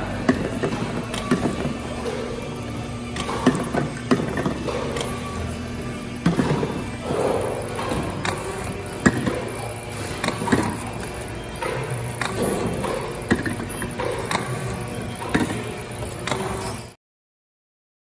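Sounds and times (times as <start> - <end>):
labeling machine whirring: 0.0 - 17.0
sharp machine clicks: 6.2 - 17.0.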